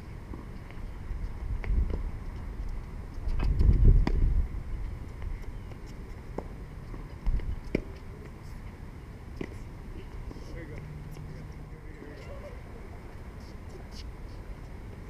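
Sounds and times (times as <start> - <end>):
tennis balls bouncing on court: 3.4 - 4.3, 5.1 - 8.4, 9.3 - 9.6
tennis balls hit with rackets: 7.6 - 8.1.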